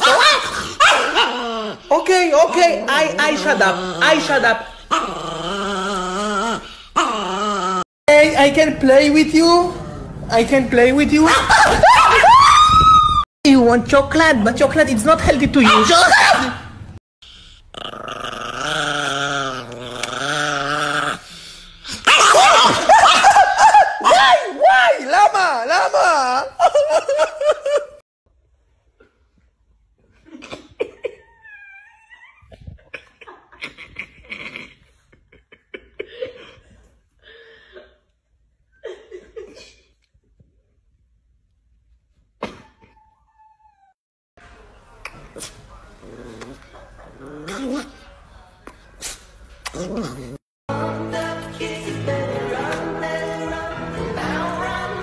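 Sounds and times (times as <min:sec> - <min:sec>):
dog growling: 0:00.4 - 0:07.9, 0:17.2 - 0:22.1, 0:45.4 - 0:48.2, 0:49.6 - 0:50.4
person's voice: 0:01.9 - 0:04.8, 0:08.1 - 0:11.5, 0:13.4 - 0:16.6.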